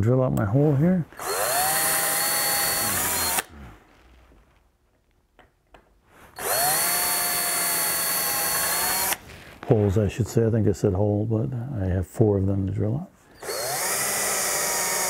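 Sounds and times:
cordless drill boring into wood: 1.2 - 3.5, 6.3 - 9.2, 13.3 - 15.0.

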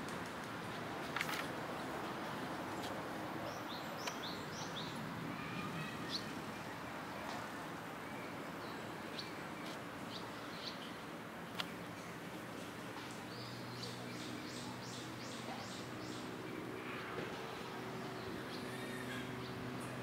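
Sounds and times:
small birds chirping: 2.7 - 5.1, 8.2 - 17.1.

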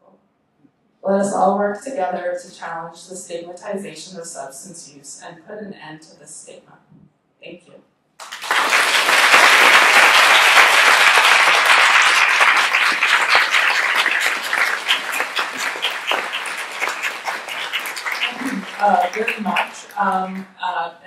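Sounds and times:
audience applauding: 8.2 - 20.5.

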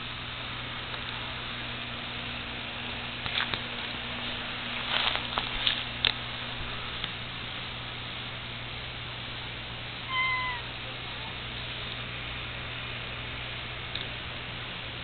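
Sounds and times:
faint scuffing noises: 4.2 - 5.9.

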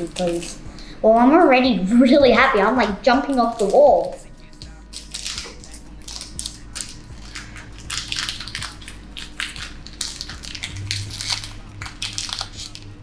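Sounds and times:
foil wrapper torn and crinkled: 0.0 - 0.6, 3.3 - 13.0.

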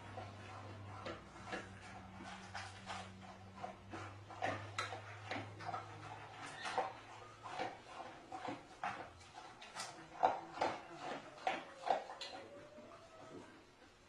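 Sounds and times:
dog eating from bowl: 0.0 - 13.6.

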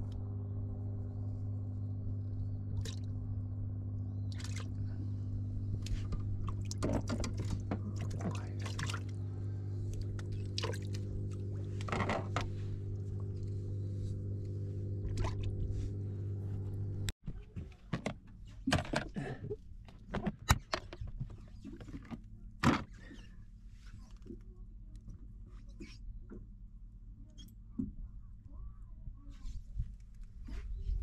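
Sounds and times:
boat engine humming: 0.0 - 17.2.

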